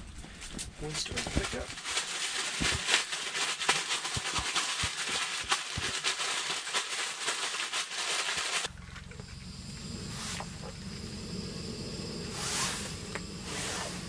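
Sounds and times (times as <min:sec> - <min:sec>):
plastic bag crinkling: 0:00.5 - 0:09.2
camp stove burner hissing: 0:08.6 - 0:14.0.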